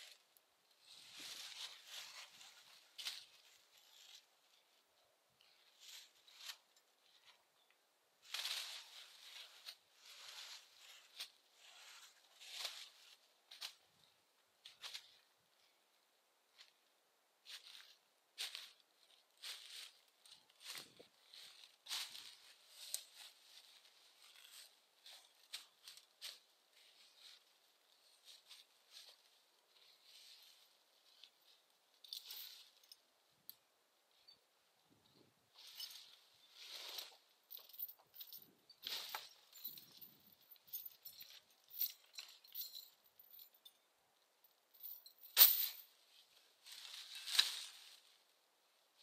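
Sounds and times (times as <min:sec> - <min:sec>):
footsteps in dry leaves: 0:00.8 - 0:04.2, 0:17.4 - 0:27.4, 0:46.6 - 0:48.2.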